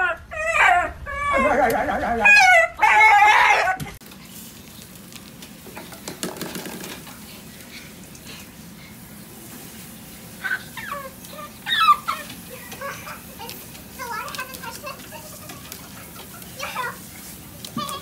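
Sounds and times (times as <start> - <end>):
dog yelping: 0.0 - 3.9, 10.4 - 12.4.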